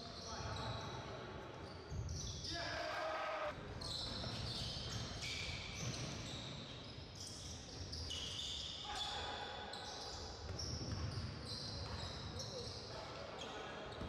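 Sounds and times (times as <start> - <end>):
sneakers squeaking on gym floor: 0.0 - 2.8, 3.7 - 14.0.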